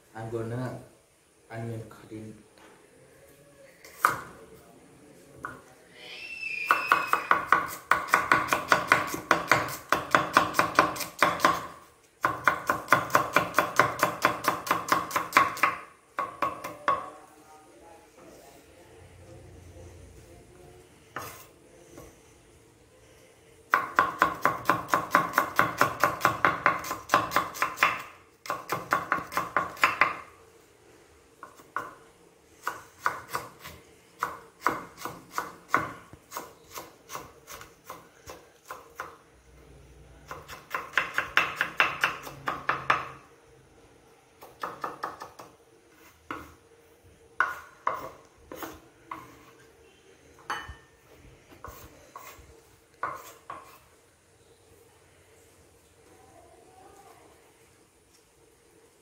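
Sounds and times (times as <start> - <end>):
knife chopping on cutting board: 6.8 - 16.8.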